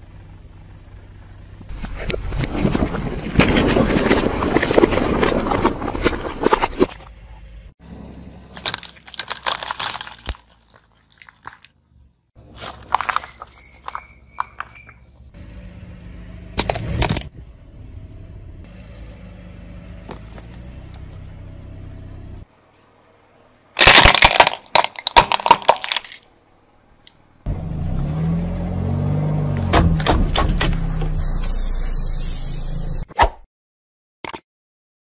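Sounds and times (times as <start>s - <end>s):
car engine running: 0.0s - 2.0s, 6.3s - 9.6s, 12.2s - 23.6s, 26.7s - 33.0s
tyre crushing plastic cracking: 8.6s - 11.8s, 12.4s - 14.0s, 23.8s - 26.2s.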